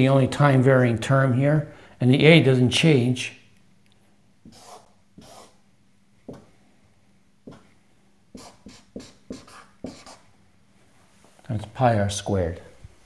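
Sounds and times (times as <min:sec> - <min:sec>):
marker writing on whiteboard: 0:04.4 - 0:05.6, 0:06.3 - 0:06.5, 0:07.4 - 0:10.3.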